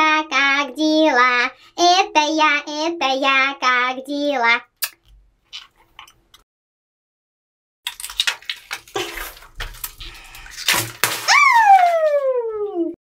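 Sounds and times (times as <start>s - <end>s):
water squelching: 7.9s - 12.0s
water balloon squeaking: 8.8s - 12.2s.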